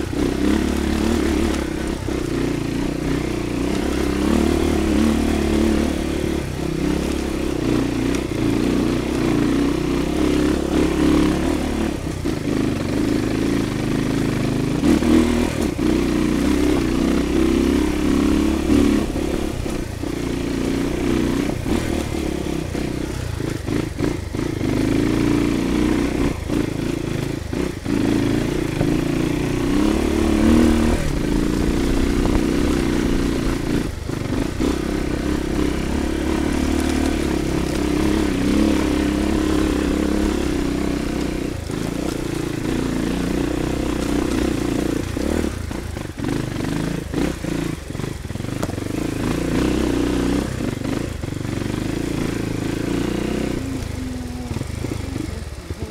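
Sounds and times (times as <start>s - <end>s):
dirt bike engine revving: 0.0s - 55.9s.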